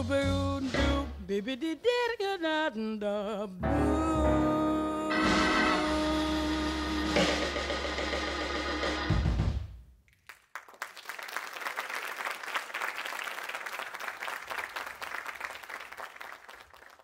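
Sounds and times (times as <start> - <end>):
recorded music: 0.0 - 2.2, 3.6 - 9.7
audience applause: 10.2 - 17.0.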